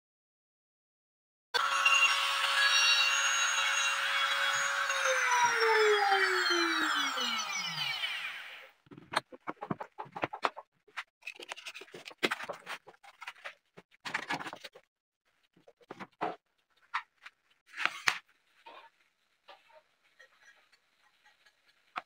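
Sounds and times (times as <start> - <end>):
trim router winding down: 1.6 - 8.7
wood being handled: 8.8 - 10.6.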